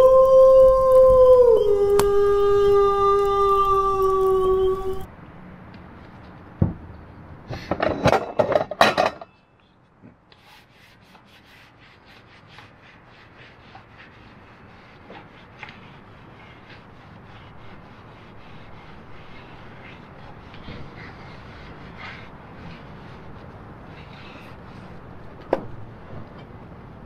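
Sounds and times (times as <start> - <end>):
dishes clacking and knocking: 7.7 - 9.4
towel rubbing wooden cutting board: 10.4 - 25.1.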